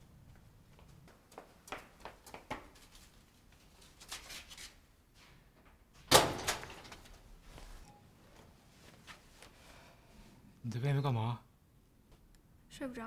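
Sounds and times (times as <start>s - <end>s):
faint footsteps: 0.1s - 4.0s, 7.0s - 9.8s
door banging shut: 6.1s - 7.0s.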